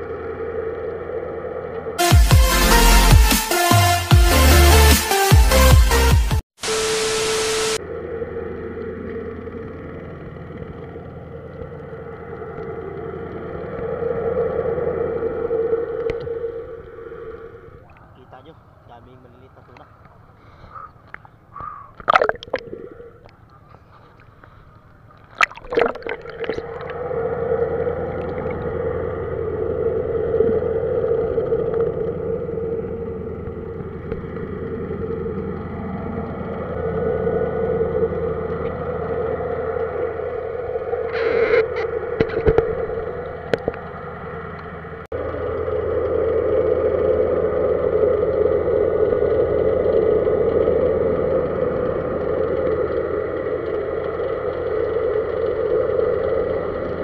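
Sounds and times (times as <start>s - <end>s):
muffled underwater drone: 0.0s - 2.0s, 6.6s - 57.0s
gurgling: 22.0s - 23.3s, 25.2s - 27.0s, 28.1s - 28.7s
water splashes: 22.0s - 23.4s, 25.1s - 27.0s.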